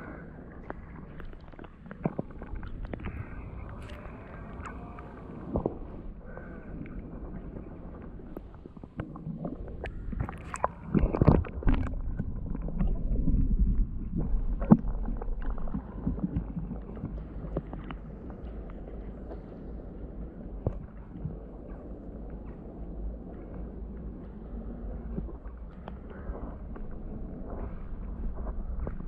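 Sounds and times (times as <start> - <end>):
underwater sloshing and gurgling: 0.0 - 29.0
sharp knocks underwater: 20.6 - 21.8.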